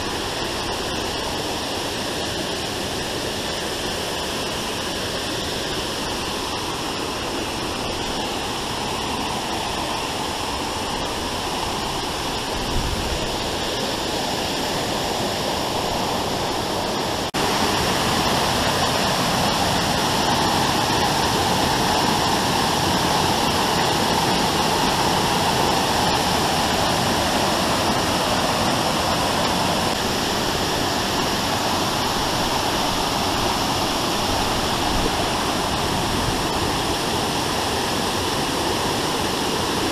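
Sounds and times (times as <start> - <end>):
waterfall pouring: 14.5 - 39.9.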